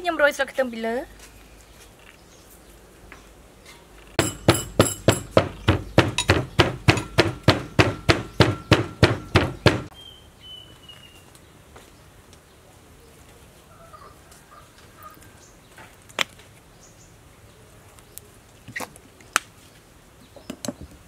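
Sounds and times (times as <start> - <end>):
wooden pestle pounding in mortar: 4.2 - 9.9.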